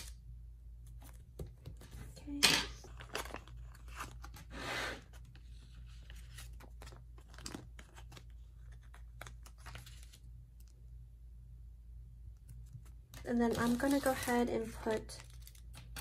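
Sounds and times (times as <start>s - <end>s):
paper sheet crackling: 5.2s - 10.7s, 12.6s - 16.0s.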